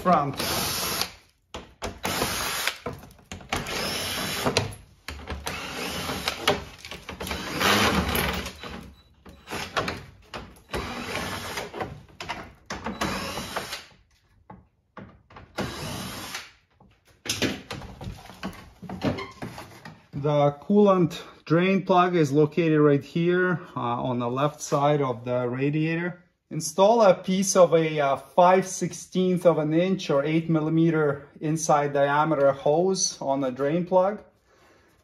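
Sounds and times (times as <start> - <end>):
plastic shield scraping and rustling: 18.0 - 20.1.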